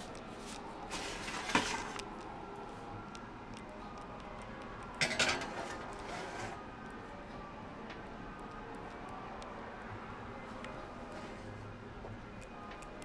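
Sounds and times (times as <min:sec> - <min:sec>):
oven rack scraping and rattling: 0:05.0 - 0:06.6.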